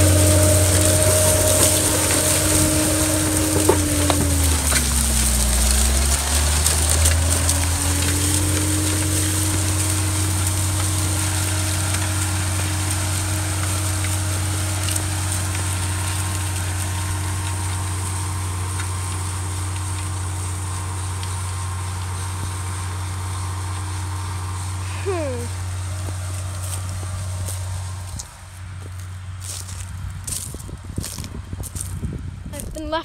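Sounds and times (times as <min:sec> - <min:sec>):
harrow disks hissing through soil: 0:00.0 - 0:33.0
tractor diesel engine running: 0:00.0 - 0:33.0.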